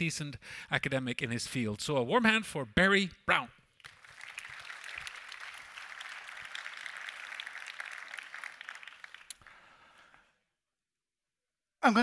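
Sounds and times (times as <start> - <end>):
audience applauding: 3.8 - 10.3.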